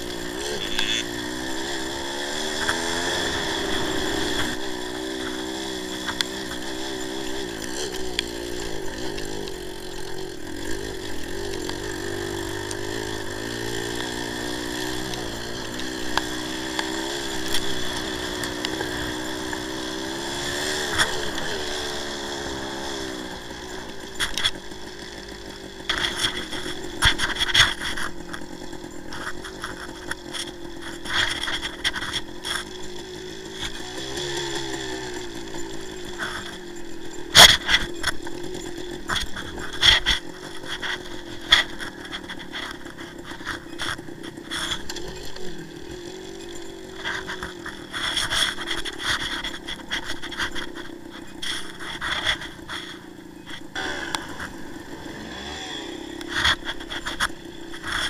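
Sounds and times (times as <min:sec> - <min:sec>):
two-stroke motorcycle engine: 0:00.0 - 0:58.0.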